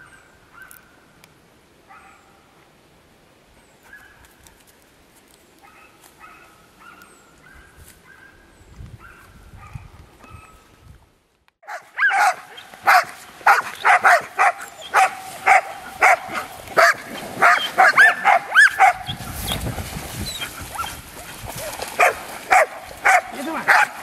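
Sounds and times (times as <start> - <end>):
dogs barking and yipping: 11.6 - 24.0.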